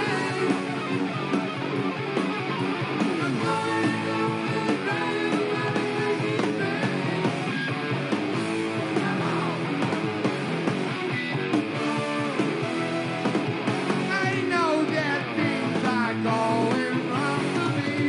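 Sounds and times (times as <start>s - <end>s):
man singing: 0.0s - 0.9s, 3.4s - 7.3s, 8.9s - 9.8s, 14.1s - 18.0s
distorted electric guitar: 0.0s - 18.0s.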